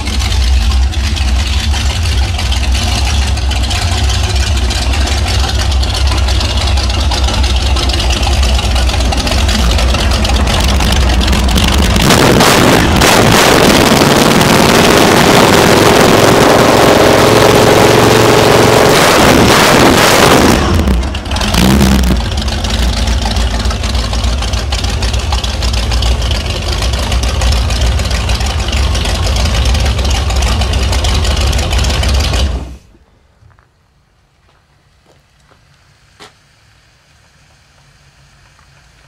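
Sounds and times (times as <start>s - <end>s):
boat engine idling: 0.0s - 12.2s, 20.7s - 33.0s.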